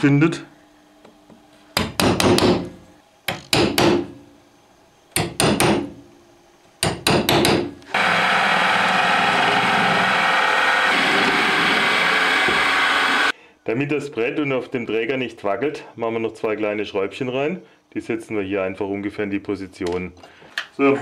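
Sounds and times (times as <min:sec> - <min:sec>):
hammer striking centre punch: 0:01.8 - 0:04.2
drill press drilling: 0:07.9 - 0:13.3.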